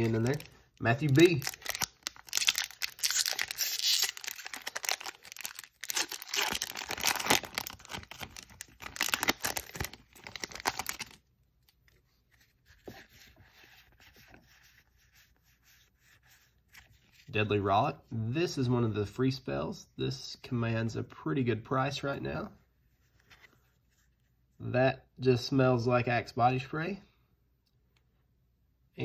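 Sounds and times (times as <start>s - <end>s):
foil wrapper tearing and crinkling: 0.0s - 11.2s.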